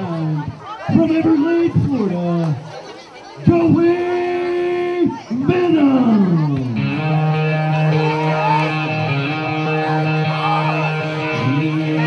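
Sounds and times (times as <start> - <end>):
guitar rock music: 6.6 - 12.0.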